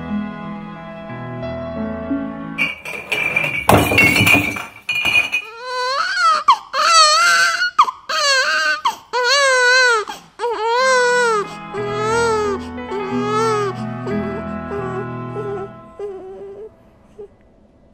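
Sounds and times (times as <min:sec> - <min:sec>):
glass bottles clinking: 0:02.6 - 0:05.6
newborn baby crying: 0:05.5 - 0:16.7.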